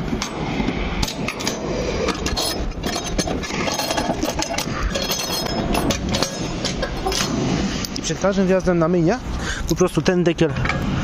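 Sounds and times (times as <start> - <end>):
metal bolts clinking and knocking: 1.0 - 7.3.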